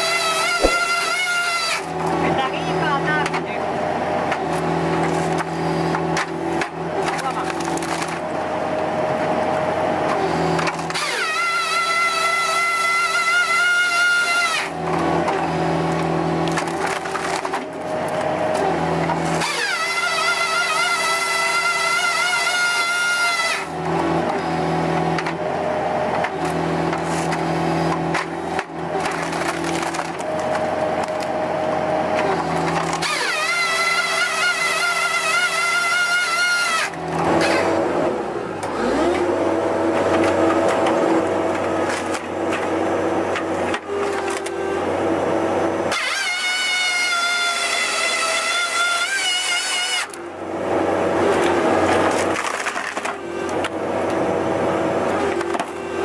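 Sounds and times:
firewood processor machinery running: 0.0s - 56.0s
wood cracking and splitting: 5.0s - 8.3s, 10.6s - 22.3s, 26.8s - 37.7s, 39.2s - 44.6s, 51.3s - 54.2s.

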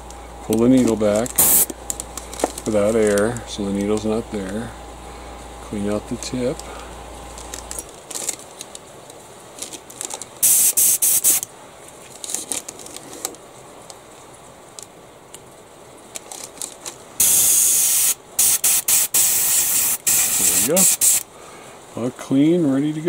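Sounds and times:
handling of airbrush: 0.7s - 4.6s, 9.6s - 11.5s, 16.2s - 21.3s
airbrush blowing air blasts: 1.3s - 1.7s, 10.4s - 11.4s, 17.2s - 21.2s.

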